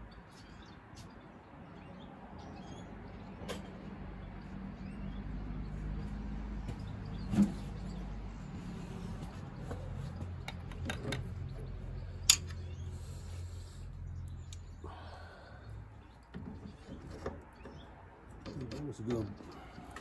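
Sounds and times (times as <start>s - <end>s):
metal tool clicks and knocks: 10.4s - 11.4s, 12.2s - 12.7s.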